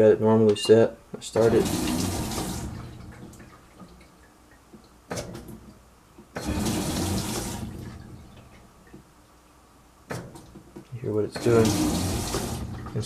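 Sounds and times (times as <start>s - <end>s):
water valves switching: 0.5s - 4.0s, 4.8s - 9.1s, 11.2s - 13.0s
water rushing into washer tub: 1.3s - 4.0s, 6.3s - 8.6s, 11.3s - 13.0s.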